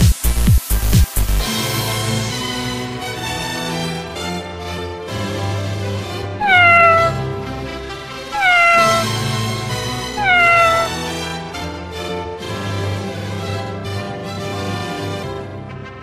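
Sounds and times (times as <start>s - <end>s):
background music: 0.0s - 16.0s
cat meowing: 6.4s - 7.4s, 8.3s - 9.4s, 10.0s - 11.1s.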